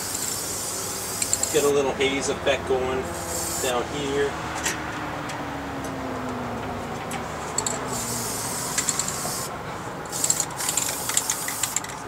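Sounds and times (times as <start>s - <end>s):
spray paint can hissing: 0.0s - 1.8s, 3.2s - 3.8s, 7.6s - 9.5s, 10.1s - 12.0s.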